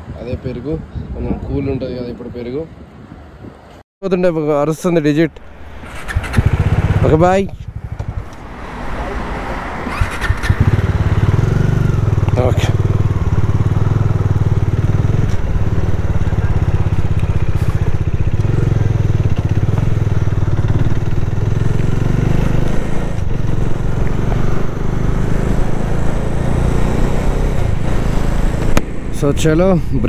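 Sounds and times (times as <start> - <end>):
motorcycle engine accelerating: 5.2 - 30.0.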